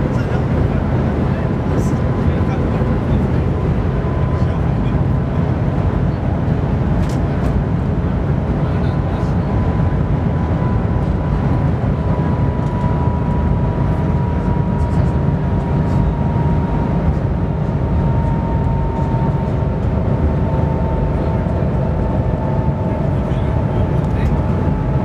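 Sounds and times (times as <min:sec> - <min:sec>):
faint whine: 0:00.0 - 0:25.0
train cabin low rumble: 0:00.0 - 0:25.0.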